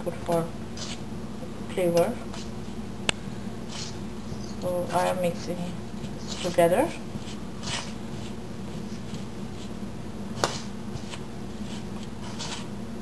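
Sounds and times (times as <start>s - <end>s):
fingers mixing dough in bowl: 0.1s - 1.1s, 3.7s - 12.7s.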